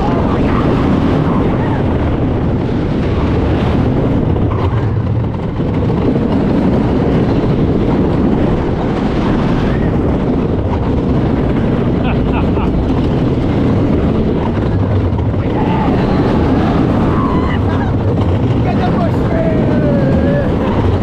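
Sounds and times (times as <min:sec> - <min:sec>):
roller coaster wheels rumbling: 0:00.0 - 0:21.0
wind on microphone: 0:00.0 - 0:21.0.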